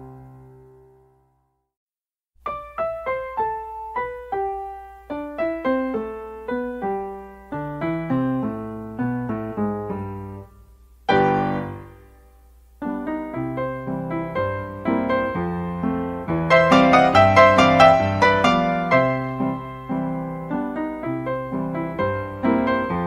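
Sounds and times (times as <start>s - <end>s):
piano music: 0.0s - 1.3s, 2.4s - 23.0s.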